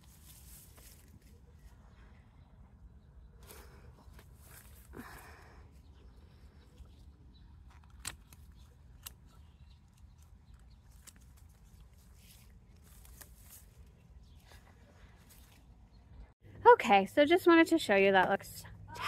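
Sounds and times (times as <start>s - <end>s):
pruning shears snipping: 7.6s - 13.6s.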